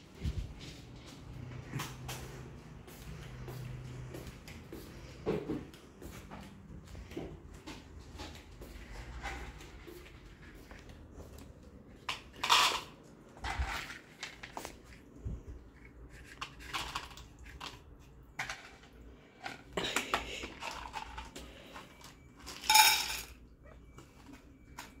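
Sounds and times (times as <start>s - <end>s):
metal bowl clinking and clattering: 12.1s - 14.6s, 22.4s - 23.4s.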